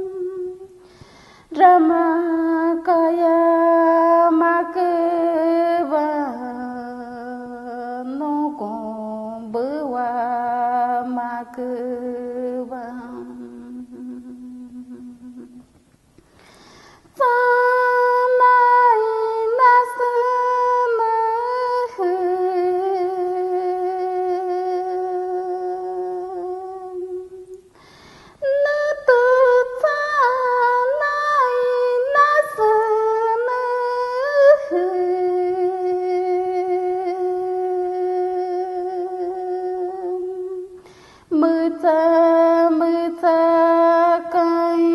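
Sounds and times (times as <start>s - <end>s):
woman singing: 0.0s - 15.8s, 17.0s - 27.7s, 28.3s - 44.9s.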